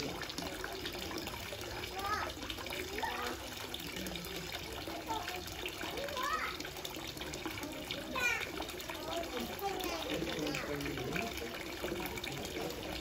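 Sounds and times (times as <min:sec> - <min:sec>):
faint distant voices: 0:00.0 - 0:13.0
water trickling down metal chute: 0:00.0 - 0:13.0.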